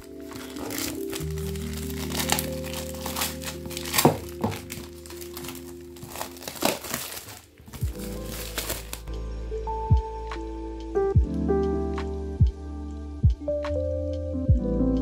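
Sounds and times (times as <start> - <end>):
plastic film crinkling: 0.0 - 9.1
background music: 0.0 - 15.0.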